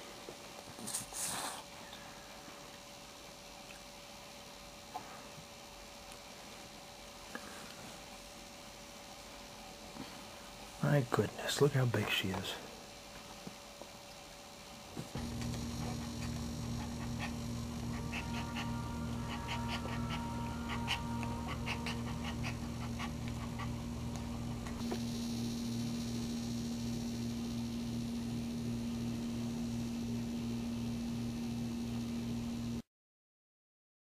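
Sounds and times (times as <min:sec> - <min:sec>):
steady low hum: 0:00.0 - 0:32.8
dog whining: 0:15.8 - 0:24.7.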